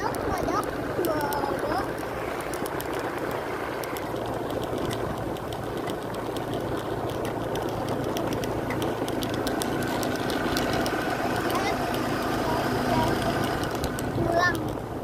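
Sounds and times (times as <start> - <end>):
small motorcycle engine running: 0.0 - 15.0
wind and road noise: 0.0 - 15.0.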